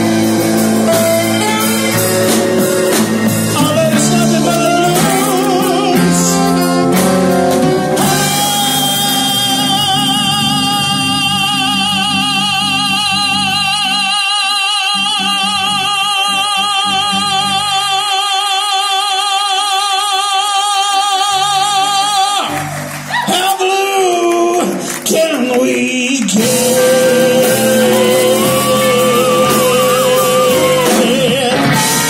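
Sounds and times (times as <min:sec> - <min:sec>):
live band playing: 0:00.0 - 0:18.0, 0:21.3 - 0:32.0
singer holding long vibrato note: 0:26.5 - 0:32.0.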